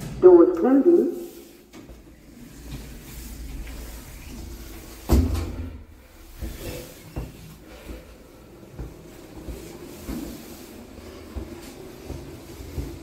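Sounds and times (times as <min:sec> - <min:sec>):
lift doors closing thud: 0:03.7 - 0:06.8
lift car clunks and knocks: 0:05.0 - 0:05.9.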